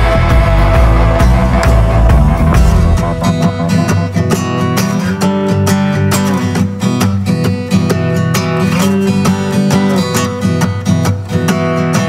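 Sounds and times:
deep bass: 0.0 - 4.4
strummed guitar: 0.0 - 12.0.

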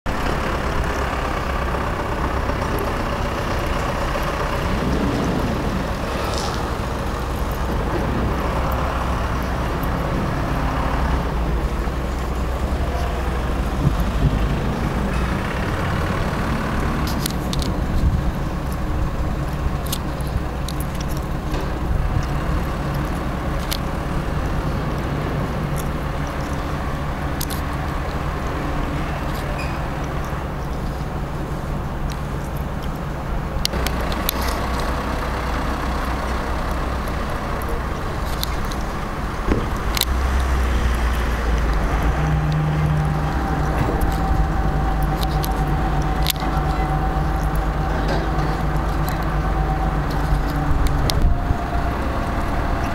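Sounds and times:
traffic noise: 0.0 - 52.9
low vehicle engine hum: 0.1 - 52.9.

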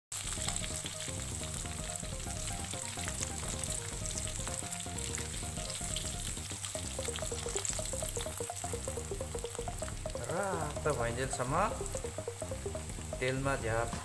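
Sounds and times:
meat deep-frying in oil: 0.1 - 14.0.

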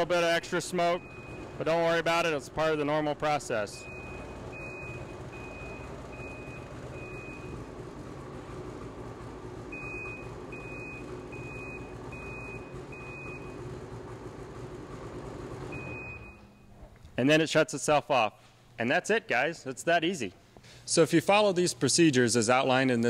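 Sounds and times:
snowmobile engine idling: 0.0 - 16.2
high electronic beeps: 0.8 - 1.6.

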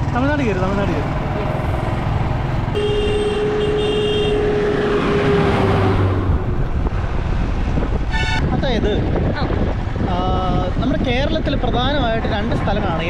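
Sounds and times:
motorcycle engine: 0.0 - 7.8
bus passing: 0.0 - 8.6
road noise: 0.0 - 13.0.

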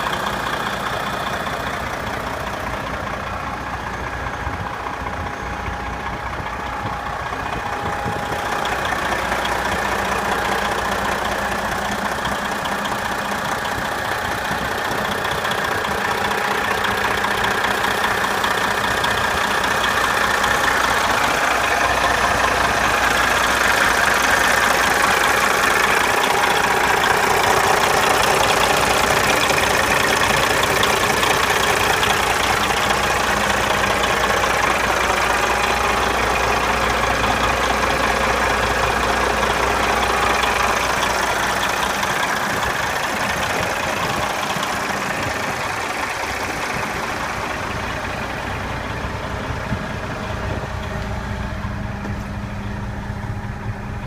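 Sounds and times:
diesel truck engine idling: 0.0 - 54.0.

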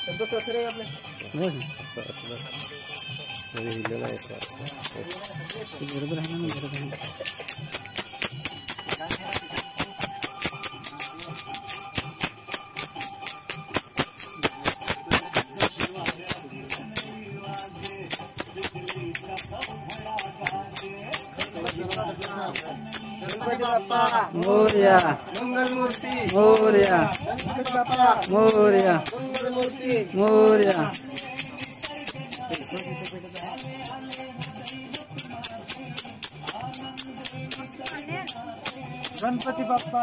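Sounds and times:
high steady tones: 0.0 - 40.0
jingling bells and percussion: 0.0 - 40.0
swooping melody line: 17.5 - 34.1.

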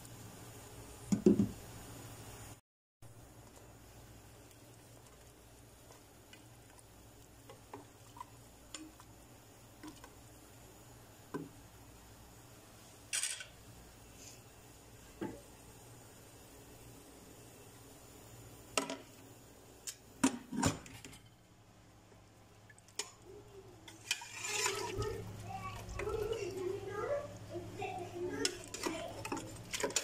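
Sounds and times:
spoon scraping pot: 23.9 - 25.2.

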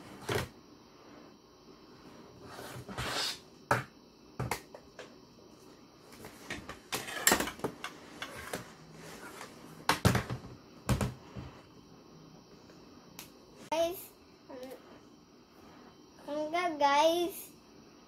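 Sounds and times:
plastic toys knocking on table: 9.9 - 11.2.

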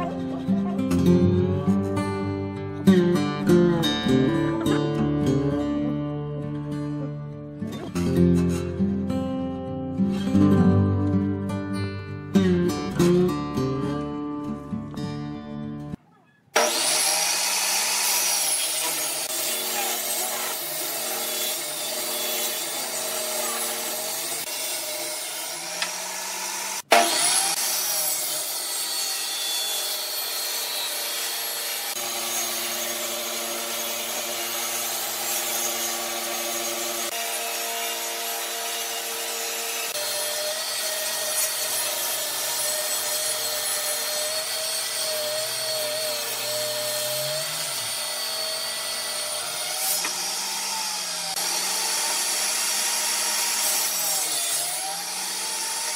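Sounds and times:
table saw cutting wood: 16.6 - 55.9.

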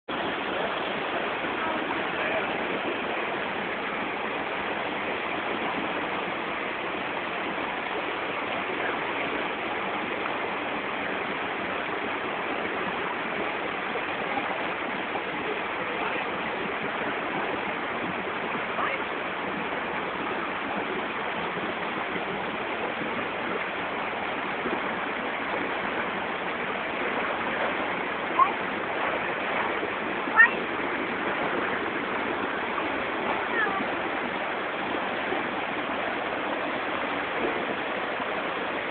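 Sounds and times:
waterfall gushing: 0.1 - 38.9.

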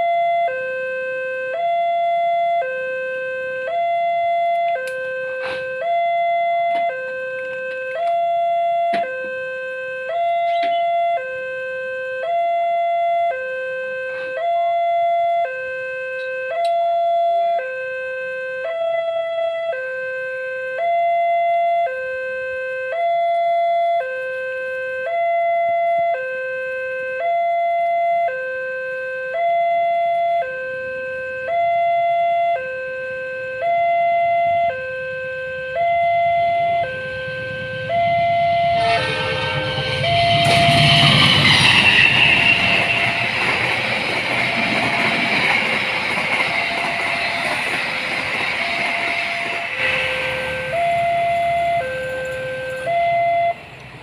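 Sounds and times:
level crossing two-tone alarm: 0.0 - 53.7
low rumble: 35.1 - 52.9.

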